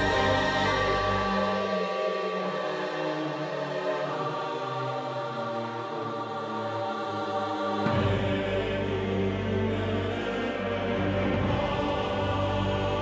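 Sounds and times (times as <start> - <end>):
slow held chords: 0.0 - 4.8
choir-like voices: 0.0 - 13.0.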